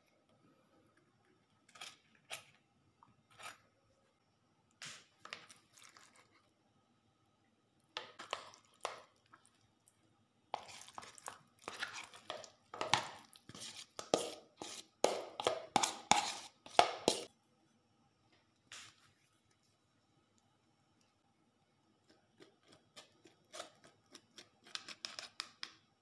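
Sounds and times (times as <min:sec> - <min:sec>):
metal spoon scraping plastic bowl: 0:03.3 - 0:03.6, 0:10.6 - 0:17.3.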